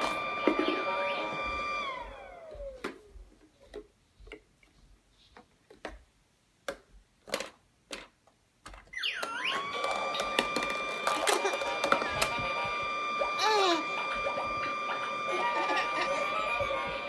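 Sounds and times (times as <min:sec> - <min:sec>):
toy fan motor whine: 0:00.0 - 0:02.8, 0:08.9 - 0:17.0
plastic clicks and knocks: 0:05.4 - 0:12.3.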